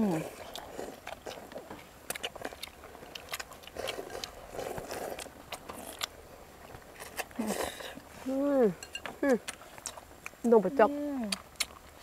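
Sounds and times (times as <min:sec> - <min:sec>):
person chewing food: 0:00.0 - 0:12.0
slurping noodles: 0:03.2 - 0:06.1.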